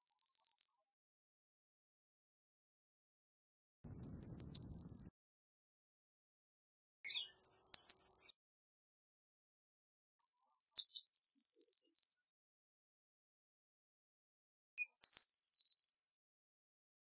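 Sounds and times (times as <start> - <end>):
blue tit singing: 3.9 - 5.1, 14.8 - 16.1.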